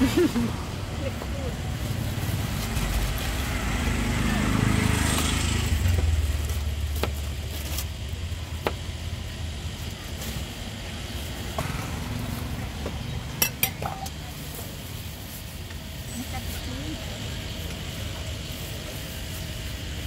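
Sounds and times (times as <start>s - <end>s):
vehicle engine rumble: 0.0s - 20.0s
dishes and utensils clinking: 13.3s - 14.2s.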